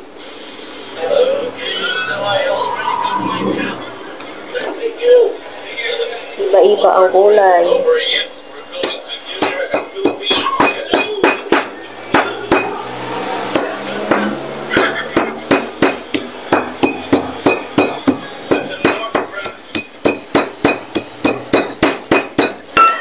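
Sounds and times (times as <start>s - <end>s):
stone pestle pounding in mortar: 9.4s - 12.8s, 13.6s - 23.0s.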